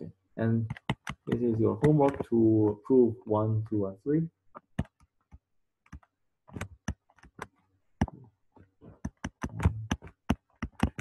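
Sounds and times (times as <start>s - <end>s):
stylus tapping on pen tablet: 0.7s - 2.3s, 4.5s - 8.2s, 9.0s - 11.0s.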